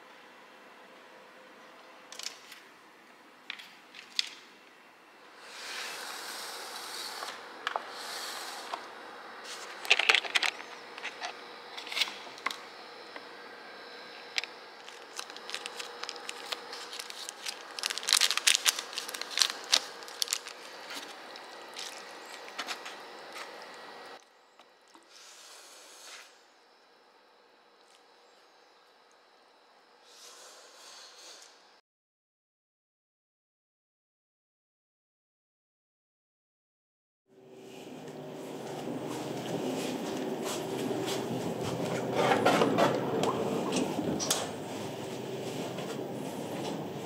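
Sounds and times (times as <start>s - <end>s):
small objects clicking and scraping: 14.4s - 22.8s.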